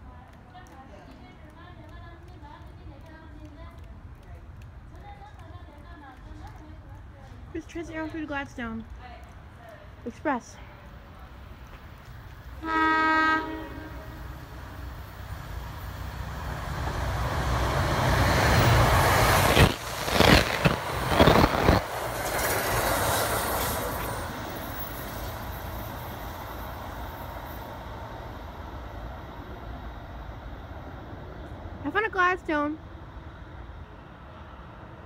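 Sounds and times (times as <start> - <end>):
train rushing past: 10.2 - 35.0
train horn: 12.6 - 14.8.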